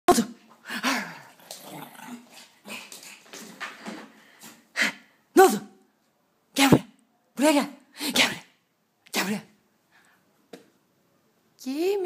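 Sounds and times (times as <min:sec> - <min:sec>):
dog growling: 0:00.8 - 0:03.2.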